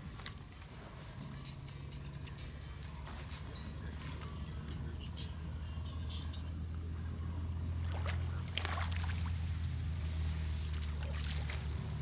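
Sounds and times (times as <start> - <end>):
steady low hum: 0.0 - 12.0
fish splashing at water surface: 7.8 - 9.4.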